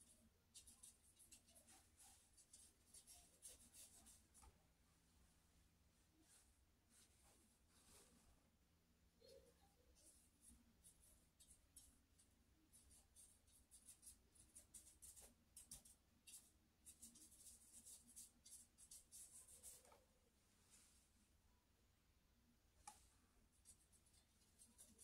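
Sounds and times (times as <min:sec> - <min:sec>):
paintbrush strokes on board: 0:00.0 - 0:04.5, 0:09.9 - 0:21.1, 0:22.8 - 0:25.0.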